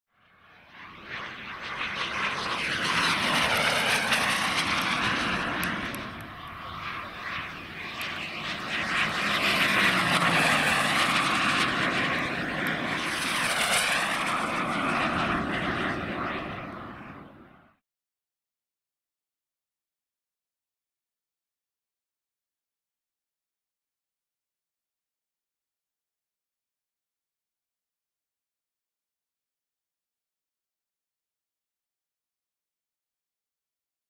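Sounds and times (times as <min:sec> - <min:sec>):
jet turbine roar and whine: 0:00.1 - 0:17.8.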